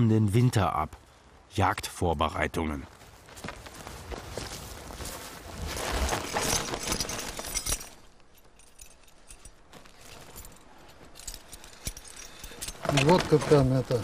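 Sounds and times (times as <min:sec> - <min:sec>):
plastic sack rustling: 0:03.1 - 0:08.2
metal traps clinking: 0:05.7 - 0:14.0.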